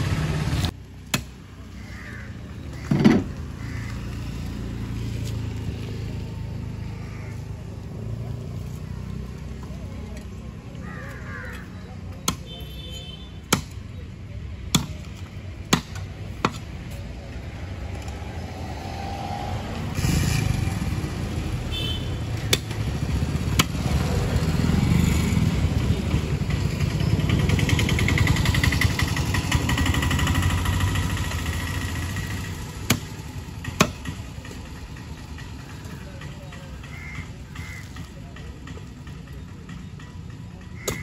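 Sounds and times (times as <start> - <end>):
motorcycle engine running: 22.8 - 40.8.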